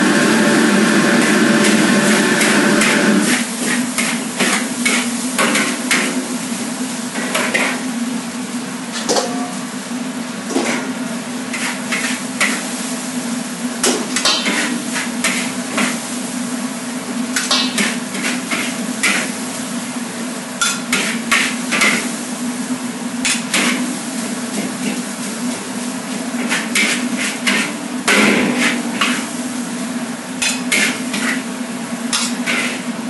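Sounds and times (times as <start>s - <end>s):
metal utensils clanking on wok: 9.0s - 9.6s, 13.8s - 16.0s, 17.4s - 19.3s, 20.6s - 22.0s, 26.4s - 29.3s, 30.4s - 31.4s, 32.1s - 32.8s.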